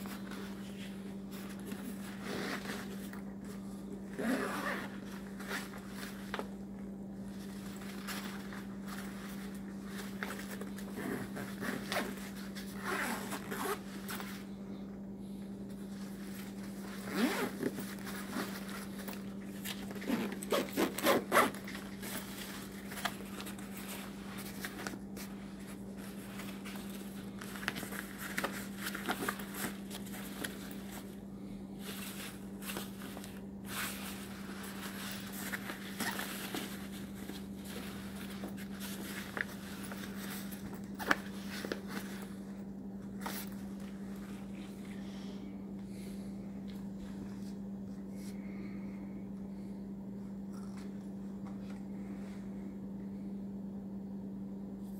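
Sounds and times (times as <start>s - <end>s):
fabric rustling: 0.0s - 14.8s, 15.7s - 45.0s
zippers opening and closing: 4.2s - 5.0s, 17.0s - 18.6s, 19.9s - 21.8s.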